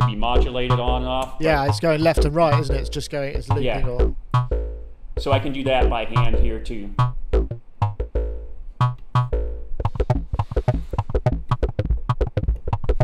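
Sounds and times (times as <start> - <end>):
deep bass thumps: 0.0 - 13.0
fast repeated synthesizer notes: 0.0 - 13.0
synthesizer notes: 0.0 - 13.0.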